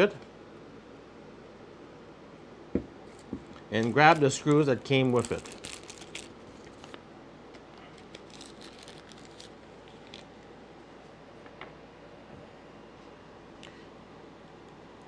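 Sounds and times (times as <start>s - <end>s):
plastic bag crinkling: 3.7s - 7.0s, 7.9s - 10.3s.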